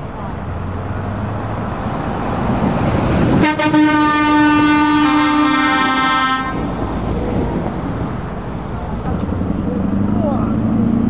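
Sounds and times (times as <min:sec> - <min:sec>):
truck engine: 0:00.0 - 0:11.0
truck air horn chord: 0:03.4 - 0:06.7.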